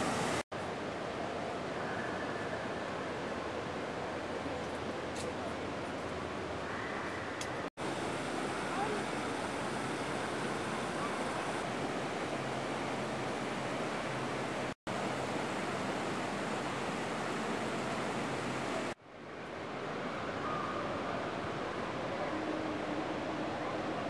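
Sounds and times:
water cascading over rocks: 0:00.0 - 0:00.4, 0:07.8 - 0:19.0.

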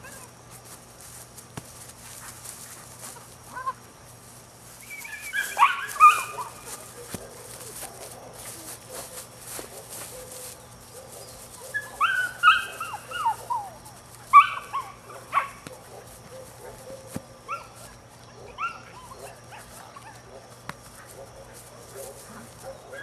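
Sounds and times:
puppy yipping and barking: 0:04.8 - 0:06.6, 0:11.6 - 0:15.6, 0:16.3 - 0:17.8, 0:18.4 - 0:20.2.

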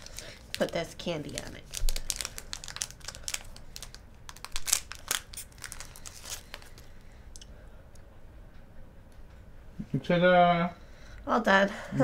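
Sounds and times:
plastic candy wrapper crinkling: 0:00.0 - 0:07.0.

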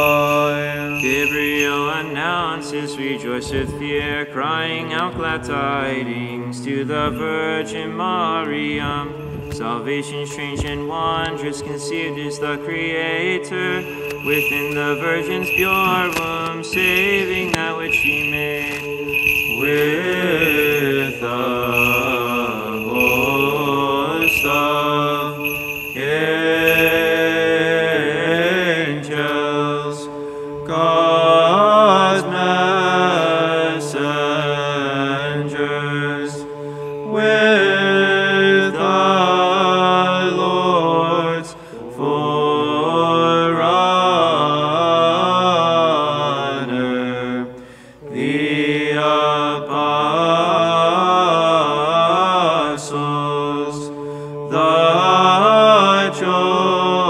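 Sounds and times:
chanters singing melody: 0:00.0 - 0:05.0, 0:06.9 - 0:30.0.

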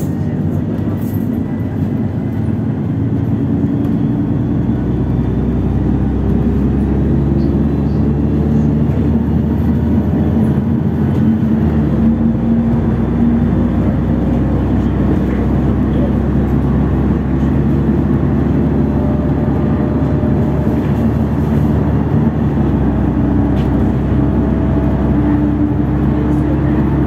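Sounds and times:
bus engine drone: 0:00.0 - 0:27.0
tyre and road noise: 0:00.0 - 0:27.0.

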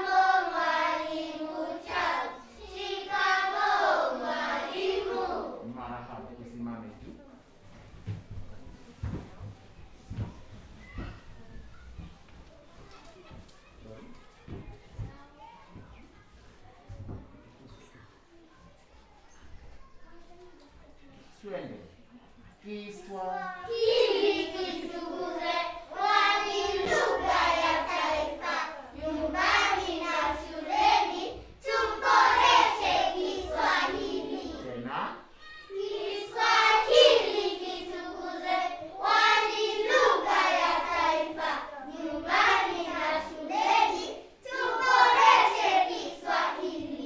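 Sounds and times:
young children singing in unison: 0:00.0 - 0:05.7, 0:23.5 - 0:47.0.

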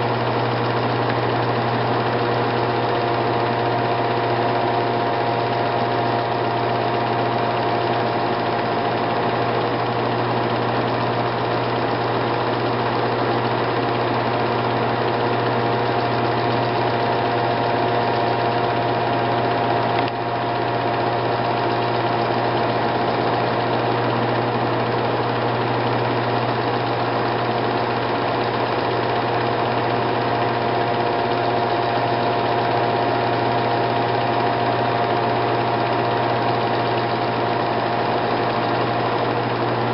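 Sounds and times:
single click: 0:19.9 - 0:20.2.

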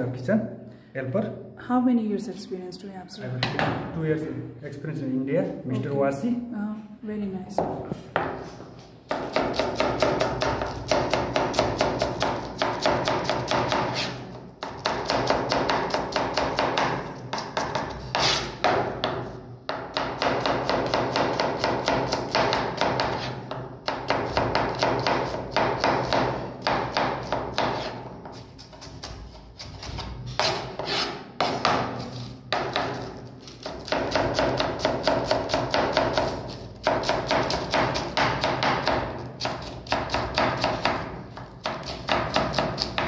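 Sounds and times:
knife chopping on wooden board: 0:09.1 - 0:29.2, 0:29.8 - 0:43.0.

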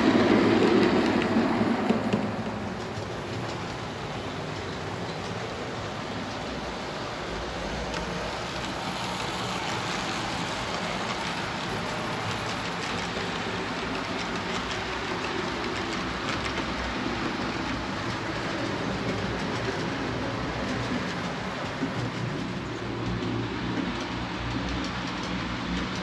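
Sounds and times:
model train wheels rolling on rails: 0:00.0 - 0:26.0.

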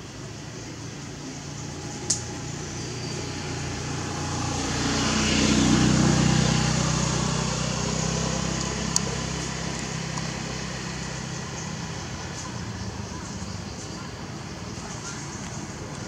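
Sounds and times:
vehicle engine passing by: 0:01.0 - 0:16.0.

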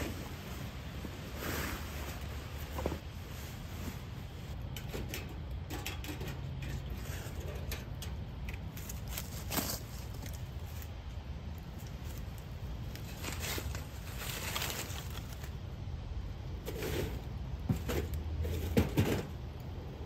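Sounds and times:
rustling on leaf litter: 0:00.0 - 0:04.6, 0:08.7 - 0:15.8.

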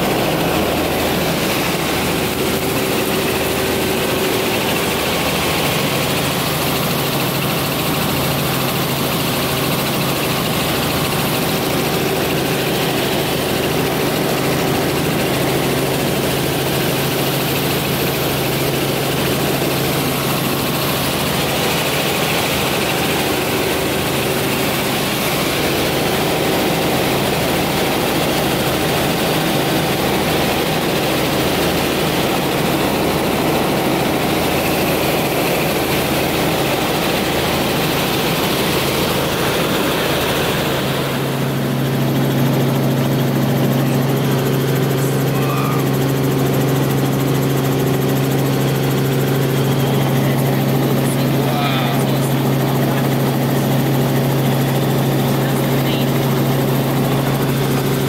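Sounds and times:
helicopter engine and rotor drone: 0:00.0 - 0:58.0.

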